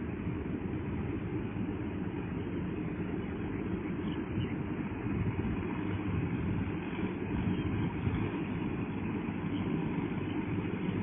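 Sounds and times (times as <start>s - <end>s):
tractor engine rumbling: 0.0s - 11.0s.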